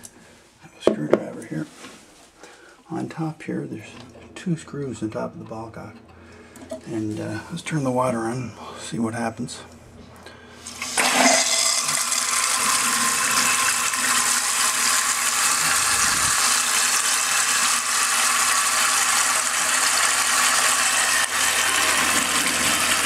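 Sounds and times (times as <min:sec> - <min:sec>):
toilet tank filling with water: 0:10.6 - 0:23.0.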